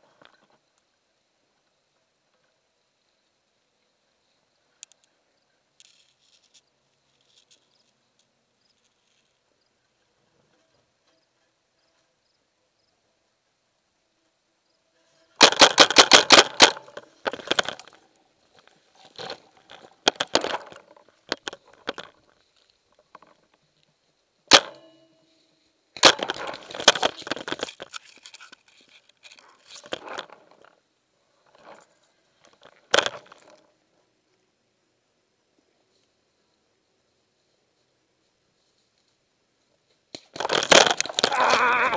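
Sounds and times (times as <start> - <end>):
paintball marker firing: 15.4 - 17.0.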